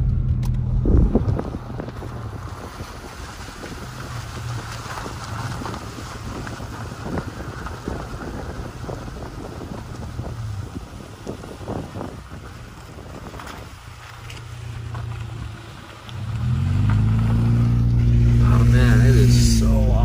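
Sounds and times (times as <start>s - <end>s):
gravel popping under tyres: 0.0s - 20.0s
vehicle engine and road rumble: 0.0s - 20.0s.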